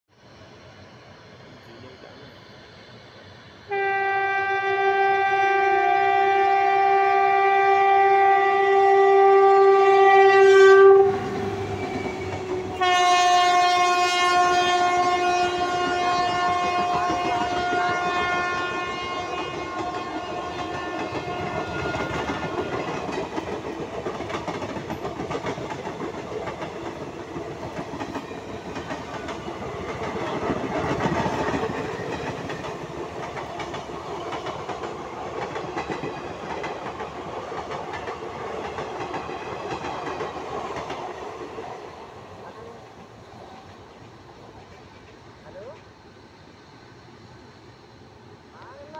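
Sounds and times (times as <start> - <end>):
train horn: 3.7 - 23.0
train wheels clattering on rails: 11.2 - 13.6, 15.6 - 42.2.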